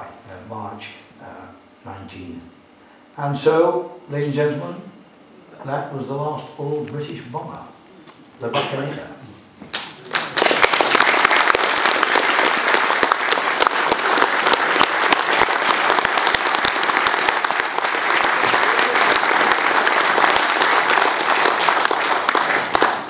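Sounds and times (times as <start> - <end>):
audience applauding: 9.8 - 23.0.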